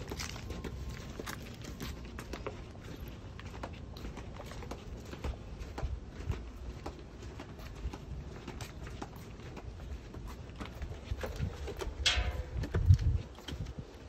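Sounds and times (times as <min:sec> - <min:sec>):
footsteps on concrete: 0:00.0 - 0:14.0.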